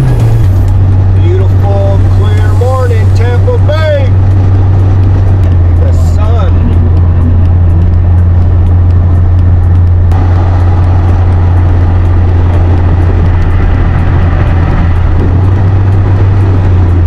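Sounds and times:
tyre and wind hiss: 0.0 - 4.2
engine and road noise drone: 0.0 - 17.0.

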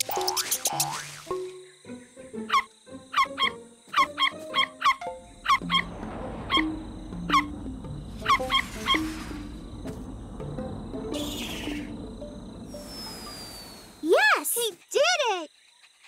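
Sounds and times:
soft plucked music: 1.3 - 12.9.

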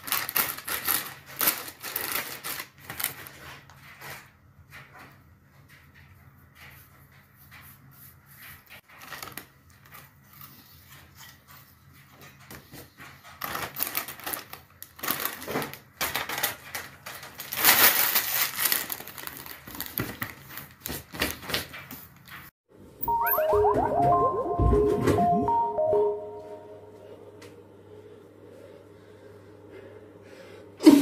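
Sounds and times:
plastic crisps bag crinkling: 0.0 - 3.5, 13.5 - 20.8.

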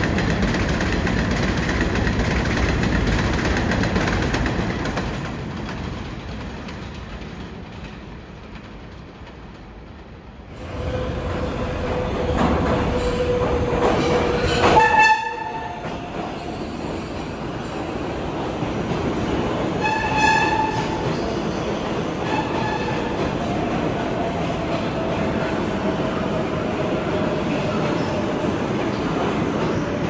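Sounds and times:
subway train rumble: 0.0 - 30.0
train horn blasts: 14.6 - 15.8, 19.8 - 20.9.

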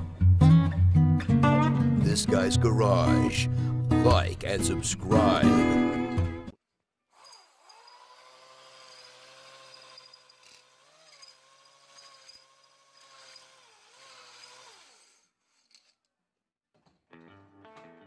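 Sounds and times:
electric drill whining: 7.2 - 16.0.

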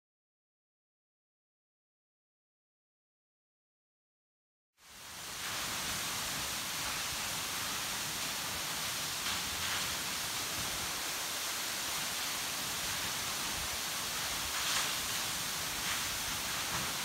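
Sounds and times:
waterfall rushing: 4.8 - 17.0.

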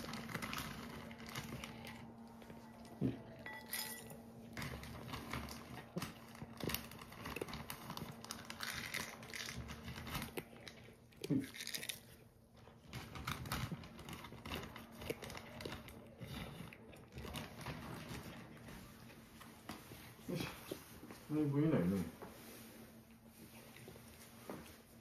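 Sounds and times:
cat crunching dry food: 0.0 - 3.4, 4.1 - 18.7.

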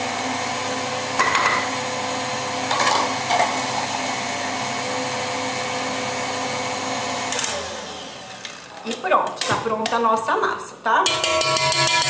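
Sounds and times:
stand mixer motor whine: 0.0 - 8.7.

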